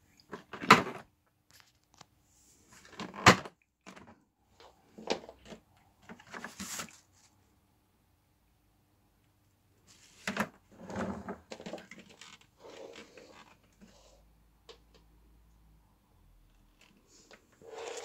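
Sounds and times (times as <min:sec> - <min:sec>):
plastic parts rattling: 0:11.5 - 0:13.8.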